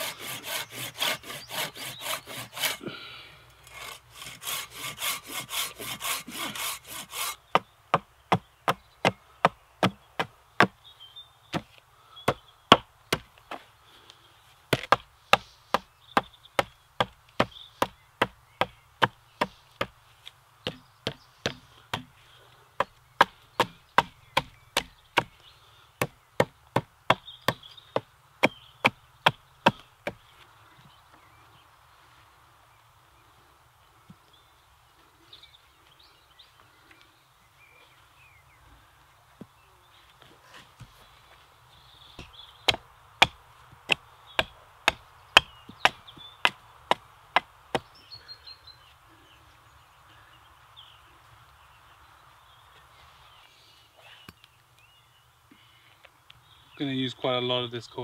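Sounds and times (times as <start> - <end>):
hatchet chopping wood: 0.0 - 2.8, 3.7 - 10.8, 12.3 - 13.3, 14.7 - 20.0, 20.7 - 22.1, 22.8 - 25.4, 26.0 - 30.2, 42.2 - 47.9
pruning saw rasping through branch: 0.0 - 3.0, 3.6 - 7.5.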